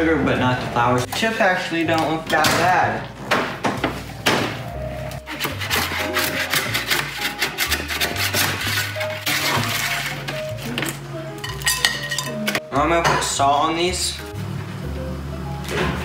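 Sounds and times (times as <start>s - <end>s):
background music with bass line: 3.8s - 16.0s
metal spatula scraping sheet pan: 5.2s - 10.8s.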